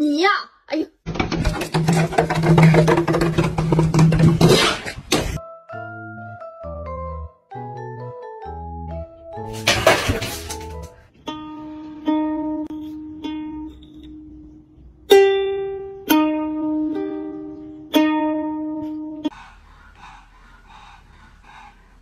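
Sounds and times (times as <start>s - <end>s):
ukulele notes plucked: 11.3s - 14.4s, 15.1s - 19.3s.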